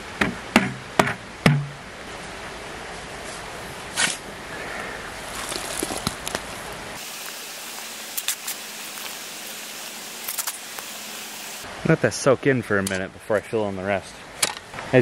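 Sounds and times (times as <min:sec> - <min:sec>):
steady hiss: 0:02.0 - 0:12.4
shovel scraping soil: 0:05.2 - 0:11.6.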